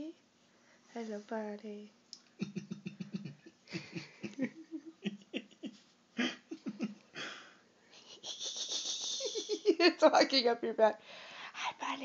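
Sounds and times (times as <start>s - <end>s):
person giggling and laughing: 2.4s - 7.4s, 8.0s - 9.9s.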